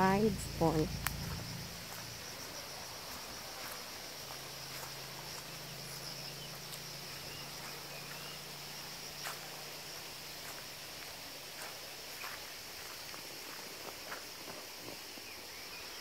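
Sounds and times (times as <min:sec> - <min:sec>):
low steady hum: 0:00.0 - 0:02.8
insects chorus: 0:00.0 - 0:16.0
faint ticks: 0:00.8 - 0:02.0.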